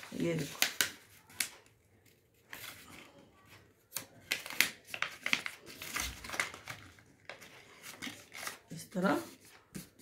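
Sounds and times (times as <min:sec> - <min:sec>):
paper crackling as folded: 0:00.0 - 0:10.0.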